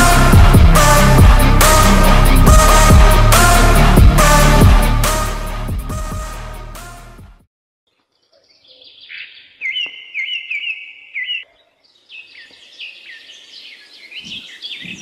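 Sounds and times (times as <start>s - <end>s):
high bird chirps: 8.1s - 15.0s
bird whistling rising notes: 8.6s - 11.4s.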